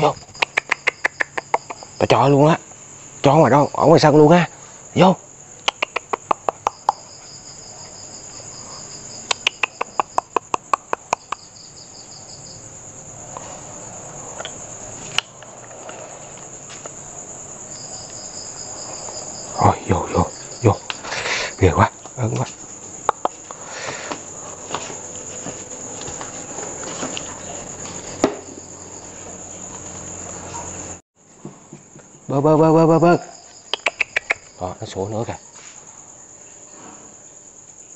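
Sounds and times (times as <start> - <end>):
pulsing insect trill: 0.0 - 31.0, 31.8 - 37.9
crickets chirring: 0.0 - 37.9
knocks and thumps: 27.8 - 28.6.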